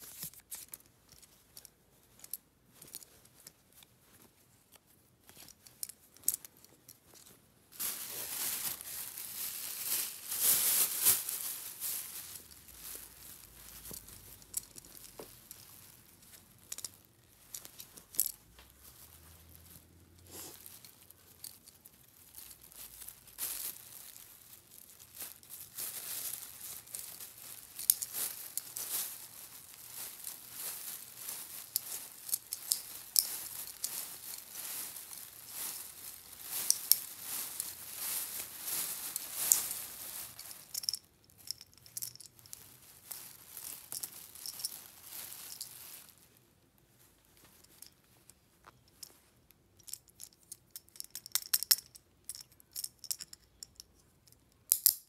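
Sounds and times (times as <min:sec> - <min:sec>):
plastic bag crinkling: 0:05.4 - 0:46.4.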